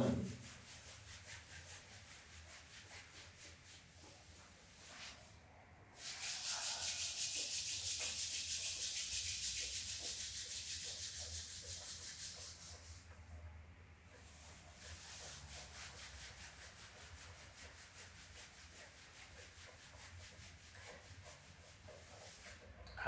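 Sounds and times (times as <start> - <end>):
palms rubbing together: 6.0 - 13.0, 14.3 - 22.7.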